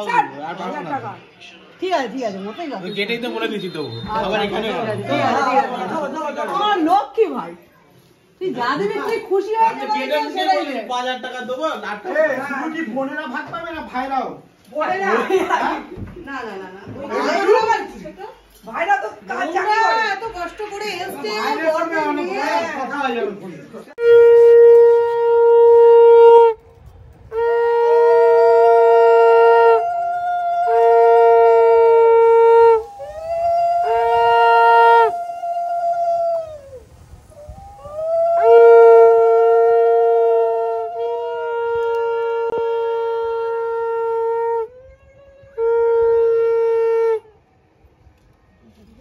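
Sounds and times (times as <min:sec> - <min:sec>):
conch shell blasts: 0:24.0 - 0:35.5, 0:36.8 - 0:44.5.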